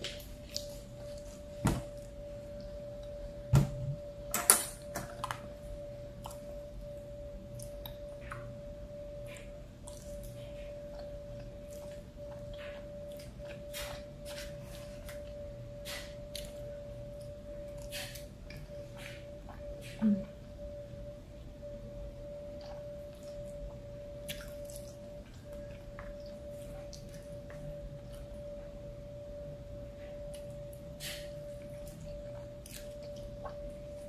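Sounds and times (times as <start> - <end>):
faint steady hum: 0.0 - 34.0
wet chewing: 30.2 - 34.0.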